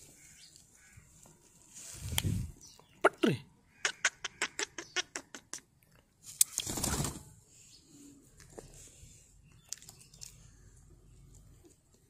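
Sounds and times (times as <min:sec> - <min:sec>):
bird feathers rustling in hand: 0:00.1 - 0:02.6.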